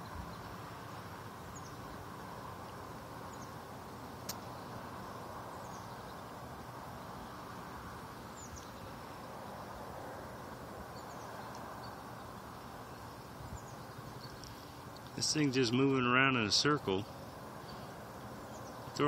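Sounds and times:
background hiss and rumble: 0:00.0 - 0:19.0
sharp click: 0:04.2 - 0:04.5.

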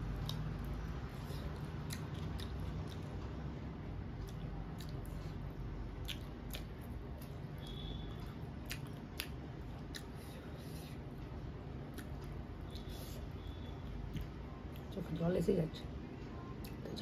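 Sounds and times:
steady low hum: 0:00.0 - 0:17.0
person chewing with wet mouth clicks: 0:00.1 - 0:03.4, 0:04.1 - 0:10.4, 0:11.8 - 0:15.0, 0:16.6 - 0:16.9.

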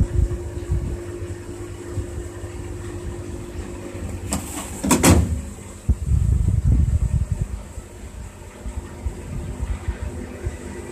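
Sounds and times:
washing machine running: 0:00.0 - 0:10.9
plastic drawer sliding shut: 0:04.3 - 0:05.4.

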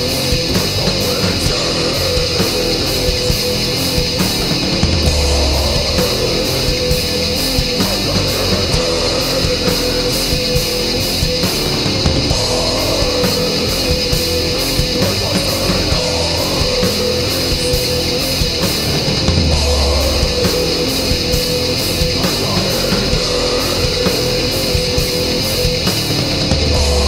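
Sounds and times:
metal band playing: 0:00.0 - 0:27.0.

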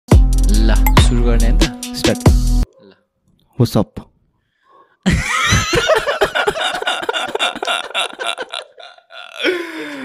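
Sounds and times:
hearty laughter: 0:05.0 - 0:10.0.

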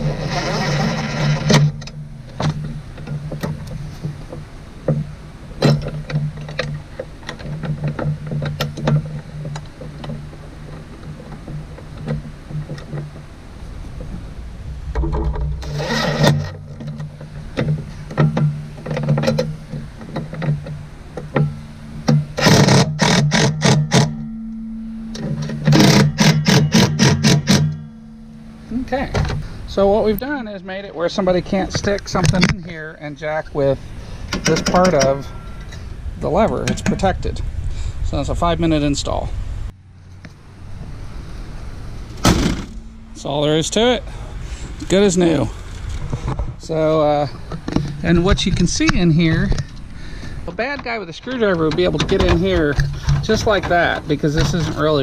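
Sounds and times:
steady low hum: 0:00.0 - 0:55.0
impact driver hammering bolts: 0:25.1 - 0:27.9.

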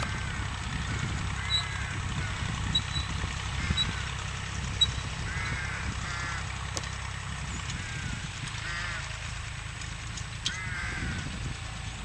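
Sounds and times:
tractor engine running: 0:00.0 - 0:12.0
honk-like squeals: 0:00.1 - 0:04.1.

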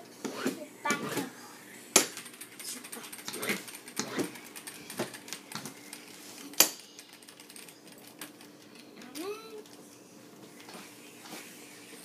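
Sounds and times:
spinning top whirring: 0:01.2 - 0:09.0.

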